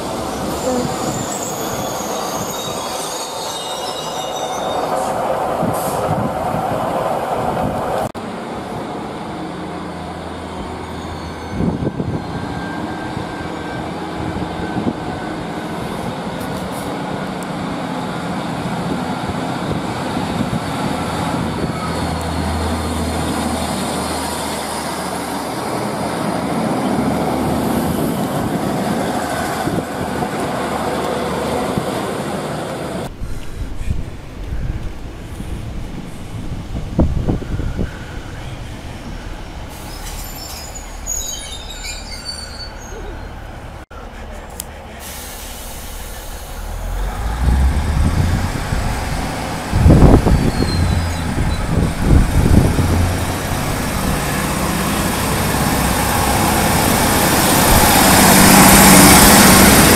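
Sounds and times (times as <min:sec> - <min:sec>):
diesel train passing: 0:00.0 - 0:59.9
train wheel squeal: 0:00.3 - 0:06.1, 0:10.6 - 0:17.0, 0:19.6 - 0:23.4, 0:37.8 - 0:43.7, 0:49.9 - 0:51.9.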